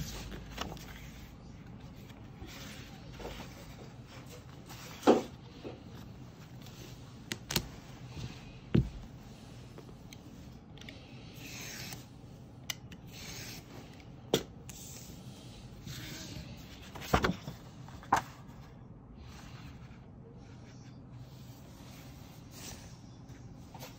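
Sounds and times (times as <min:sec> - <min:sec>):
paper rustling and sliding: 0:00.0 - 0:08.3, 0:16.2 - 0:18.6.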